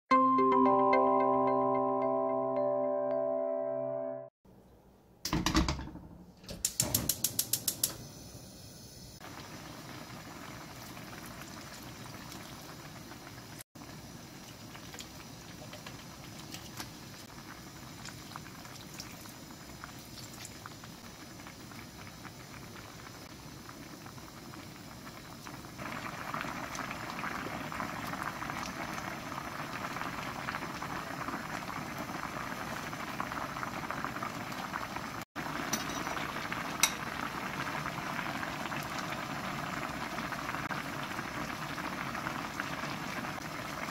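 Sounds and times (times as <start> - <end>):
stew bubbling in a pan: 9.1 - 43.9.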